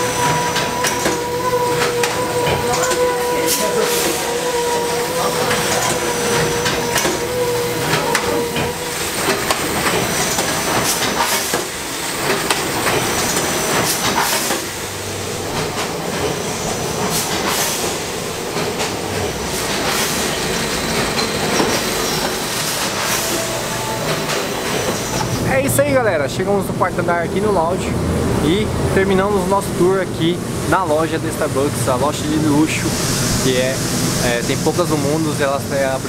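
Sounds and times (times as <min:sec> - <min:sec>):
packaging machine clatter and hiss: 0:00.0 - 0:25.4, 0:31.9 - 0:36.0
steady hum tone: 0:22.0 - 0:28.3.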